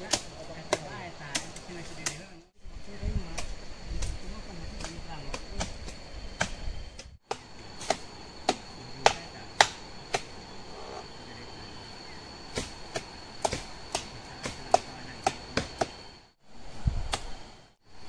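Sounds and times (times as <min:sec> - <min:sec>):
sharp strikes on tree trunk: 0:00.0 - 0:02.2, 0:04.8 - 0:10.4, 0:12.5 - 0:16.0, 0:17.1 - 0:17.4
high insect drone: 0:00.0 - 0:18.0.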